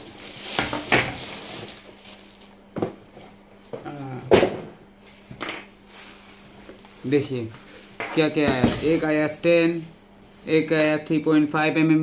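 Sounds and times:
plastic bags rustling: 0.0 - 3.4, 5.9 - 9.1.

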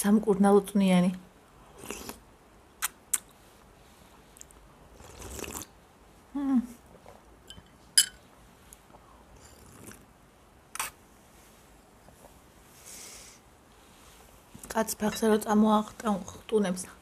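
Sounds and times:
mouth and chewing sounds: 1.7 - 2.2, 2.8 - 3.7, 4.3 - 5.7
slurp: 1.7 - 2.2, 4.4 - 5.8, 9.4 - 10.1, 10.8 - 11.0
spoon clinking on glass bowl: 7.5 - 8.2.

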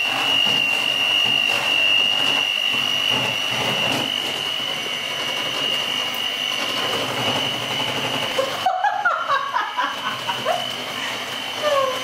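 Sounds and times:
electric mixer whining: 0.0 - 12.0
person chuckling: 8.4 - 12.0.

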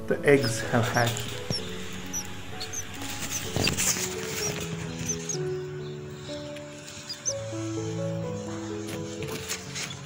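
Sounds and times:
background guitar-like music: 0.0 - 10.0
nestlings peeping: 0.0 - 10.0.

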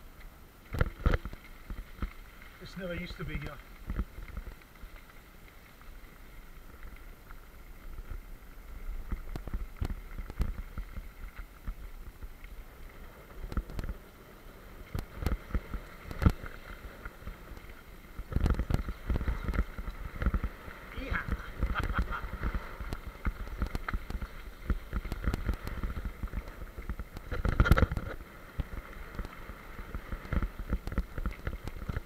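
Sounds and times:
bike tyres crunching on gravel: 0.0 - 32.0
bike knocking and rattling: 14.8 - 32.0.

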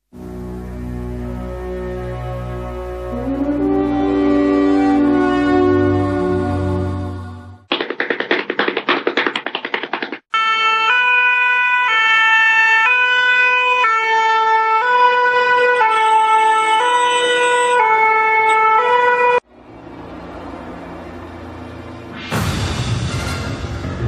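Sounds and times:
two-tone fire engine siren: 0.2 - 7.0, 10.3 - 22.1
fast rattling pulses: 7.7 - 10.2.

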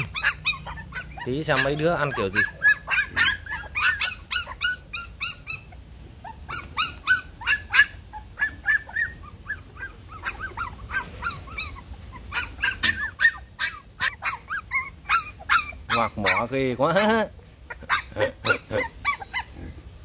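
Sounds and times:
puppies yelping and whining: 0.0 - 20.0.

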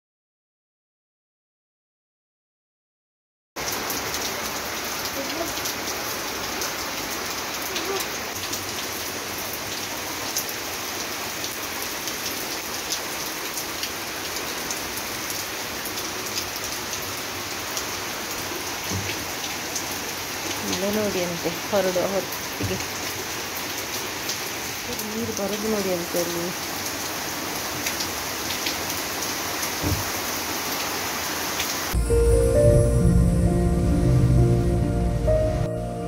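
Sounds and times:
raindrops ticking close by: 3.6 - 30.9
rain on concrete and leaves: 3.6 - 36.0.

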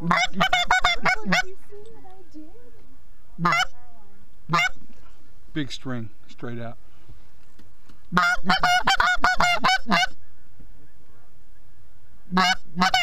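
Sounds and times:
goose honking: 0.0 - 1.6, 3.4 - 3.8, 4.5 - 4.8, 8.1 - 10.4, 12.3 - 13.0
low wind rumble: 0.0 - 13.0.

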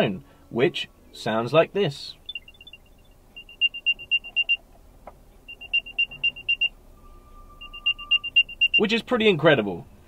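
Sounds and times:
rapid high chirping beeps: 2.2 - 4.6, 5.4 - 6.8, 7.6 - 8.9.

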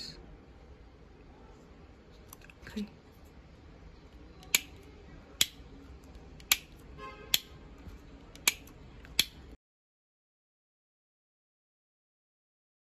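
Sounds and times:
rocker switch clicks: 4.4 - 4.8, 5.4 - 5.6, 6.4 - 6.7, 7.3 - 7.5, 8.3 - 9.4.

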